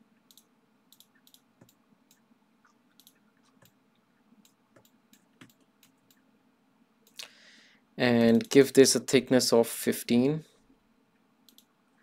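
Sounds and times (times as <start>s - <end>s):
faint computer mouse clicks: 0.2s - 3.8s, 4.4s - 6.2s, 11.4s - 11.7s.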